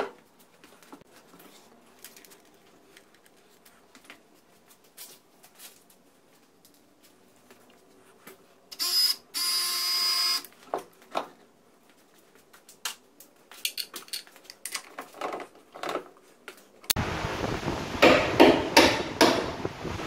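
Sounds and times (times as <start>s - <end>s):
metal fittings clicking and knocking: 13.6s - 16.0s.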